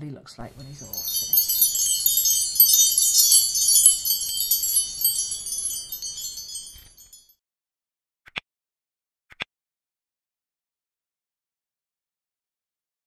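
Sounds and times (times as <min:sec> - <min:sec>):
wind chimes: 0:00.6 - 0:07.4.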